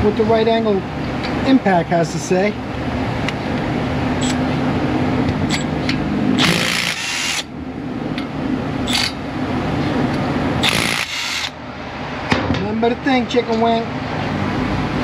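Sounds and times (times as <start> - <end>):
impact wrench hammering: 6.4 - 7.5, 10.6 - 11.5
impact wrench motor whirring: 6.4 - 7.5, 8.8 - 9.2, 10.6 - 11.6.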